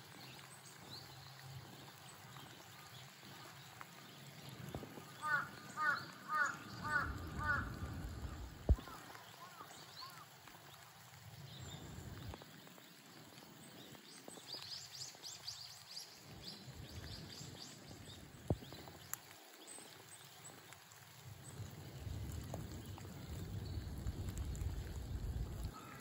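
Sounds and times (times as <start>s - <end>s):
birds twittering: 4.2s - 10.4s
low rumble: 21.7s - 25.7s.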